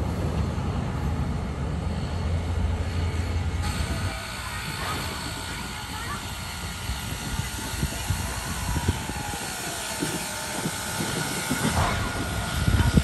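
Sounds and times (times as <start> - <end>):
steady steam hiss: 0.0 - 13.0
steam locomotive thumps and clanks: 3.1 - 13.0.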